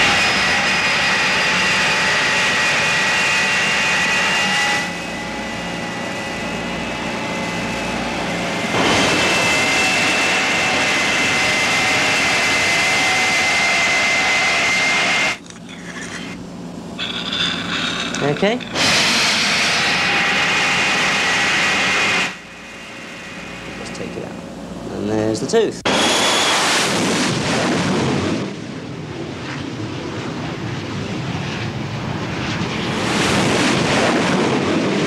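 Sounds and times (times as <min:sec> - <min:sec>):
dental drill whining: 0:17.0 - 0:22.4.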